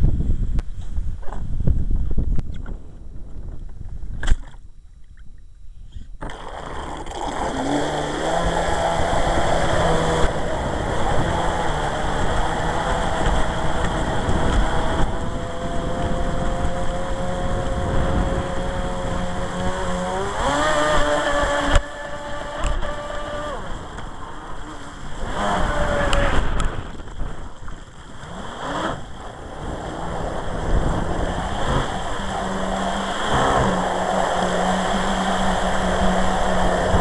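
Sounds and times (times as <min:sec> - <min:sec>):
electric motor whining: 0:06.2 - 0:26.8, 0:28.2 - 0:37.0
water rushing from boat wake: 0:06.2 - 0:37.0.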